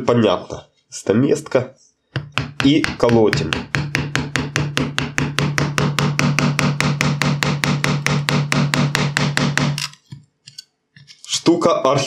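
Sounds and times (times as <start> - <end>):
mallet tapping chisel handle: 2.2 - 10.2.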